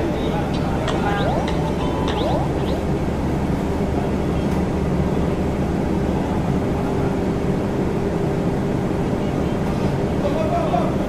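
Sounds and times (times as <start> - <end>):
ship machinery hum: 0.0 - 11.0
high steady tone: 0.6 - 3.4.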